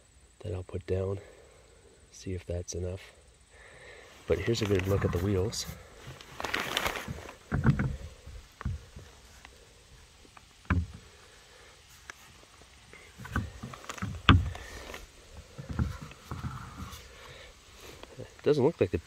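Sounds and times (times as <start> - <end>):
dull thumps on plastic hull: 7.1 - 9.1, 10.6 - 11.0, 13.2 - 14.7, 15.4 - 17.0.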